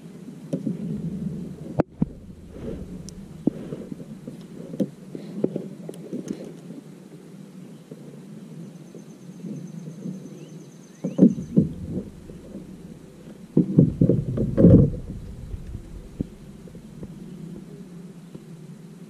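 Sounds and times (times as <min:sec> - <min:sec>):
low steady rumble: 0:00.6 - 0:05.4, 0:11.2 - 0:18.1
dull knocks and thumps: 0:00.7 - 0:04.9, 0:11.1 - 0:17.3.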